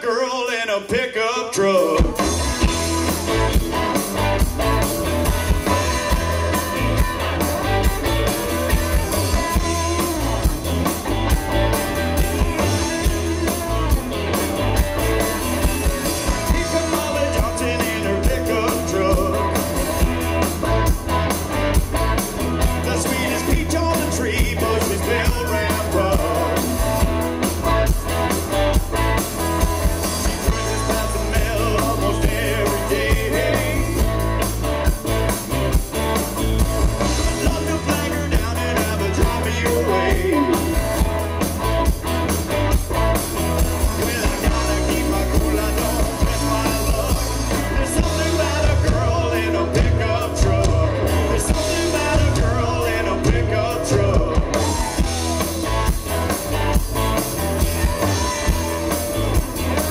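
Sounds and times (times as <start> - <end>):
electric guitar: 1.6 - 59.9
bass: 1.7 - 59.9
drum kit: 1.8 - 59.9
person singing: 15.0 - 20.1, 22.6 - 26.8, 30.0 - 34.4, 37.2 - 41.0, 43.8 - 55.7, 57.4 - 59.9.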